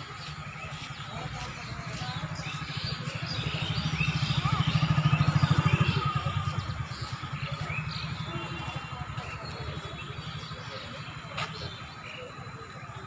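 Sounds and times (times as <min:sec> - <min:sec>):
birds chirping: 0:00.0 - 0:13.0
motorcycle engine passing by: 0:00.2 - 0:11.8.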